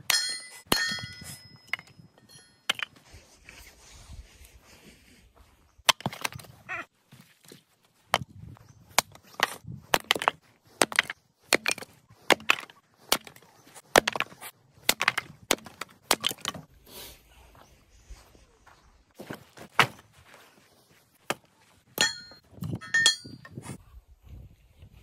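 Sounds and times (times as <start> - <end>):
axe splitting firewood: 8.9 - 16.7.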